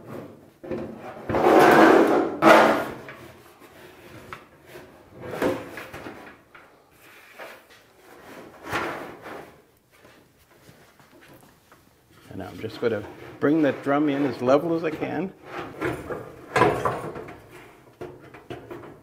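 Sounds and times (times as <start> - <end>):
metal drum scraping: 1.2 - 3.0.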